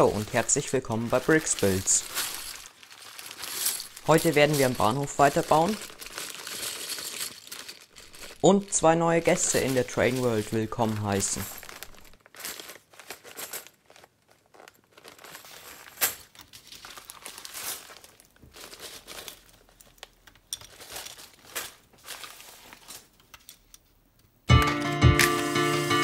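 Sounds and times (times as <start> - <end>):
plastic pieces clicking and rattling: 0.0 - 8.6, 9.3 - 21.8
loud music: 24.5 - 26.0.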